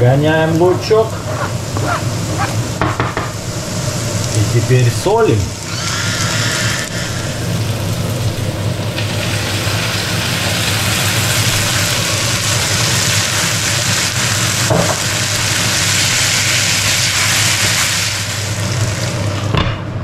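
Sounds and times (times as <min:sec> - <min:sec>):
potatoes sizzling in frying pan: 0:00.0 - 0:19.5.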